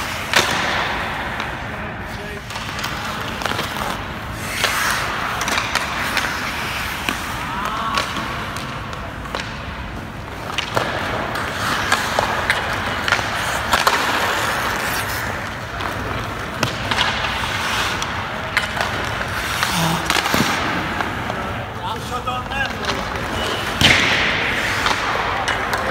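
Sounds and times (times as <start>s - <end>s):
hockey sticks striking pucks: 0.0s - 25.9s
skate blades scraping ice: 0.0s - 25.9s.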